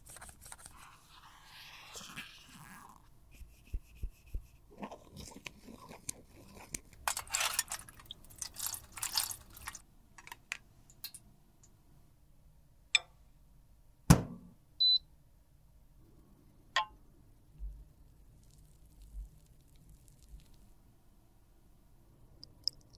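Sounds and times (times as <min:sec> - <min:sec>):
brush scraping plastic: 0:00.0 - 0:09.8
loud knock: 0:14.1 - 0:14.5
small clicks: 0:22.4 - 0:22.9.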